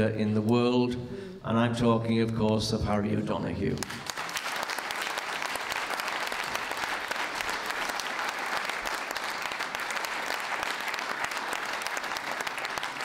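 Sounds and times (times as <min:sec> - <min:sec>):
audience applauding: 0:03.8 - 0:13.0.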